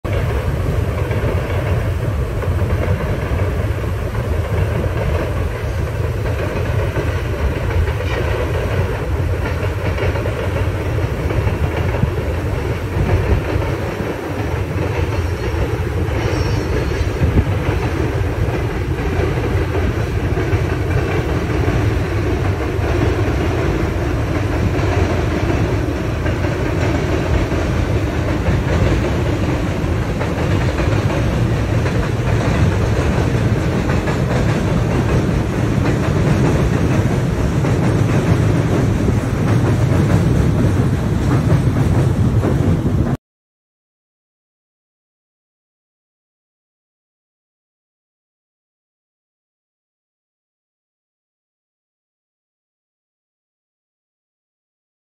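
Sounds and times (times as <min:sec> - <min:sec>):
train wheels rumbling on bridge: 0:00.0 - 0:43.2.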